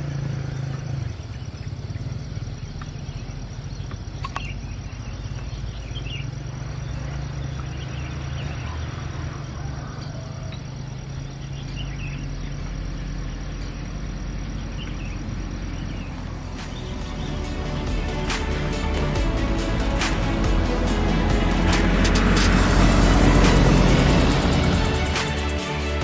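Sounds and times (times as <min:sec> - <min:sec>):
insects chirping: 0:00.0 - 0:26.0
steady low hum: 0:10.9 - 0:26.0.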